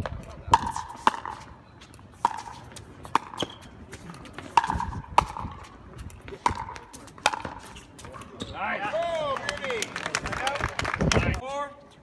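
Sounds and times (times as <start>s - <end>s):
paddles hitting pickleball: 0.2s - 1.5s, 2.2s - 9.7s.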